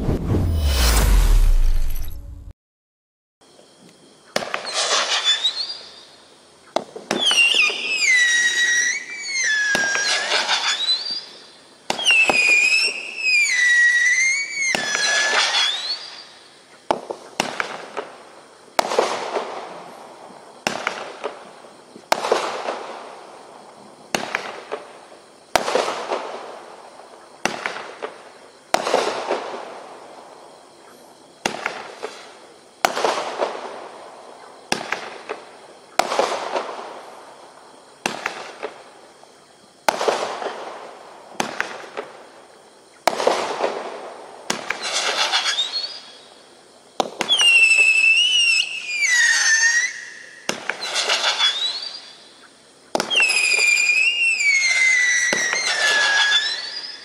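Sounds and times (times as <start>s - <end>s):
firework crackling: 0.0s - 2.5s, 4.4s - 5.7s, 7.1s - 11.0s, 31.4s - 46.2s, 47.0s - 52.2s, 52.9s - 57.0s
firework shots: 0.0s - 2.5s, 34.6s - 36.9s, 38.0s - 38.9s, 39.8s - 42.2s
firework whistles: 0.0s - 2.5s, 4.3s - 16.8s, 44.5s - 57.0s.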